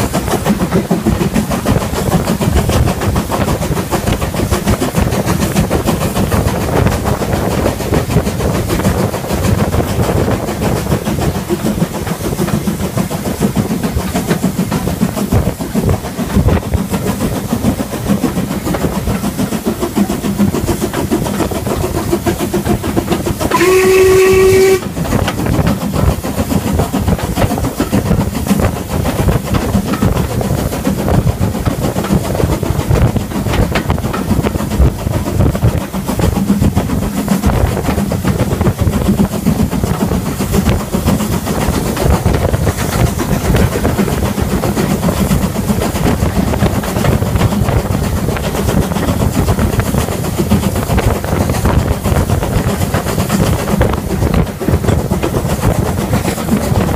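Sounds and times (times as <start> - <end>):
steam locomotive chuffing: 0.0 - 56.9
wheels clattering over rail joints: 0.0 - 56.9
steam whistle blast: 23.5 - 25.0.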